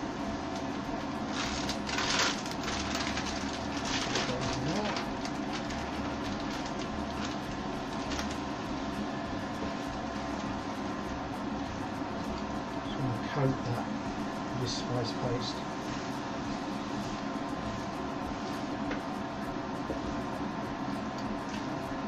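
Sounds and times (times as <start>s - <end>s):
steady mechanical hum: 0.0s - 22.0s
plastic bag rustling: 1.3s - 8.6s.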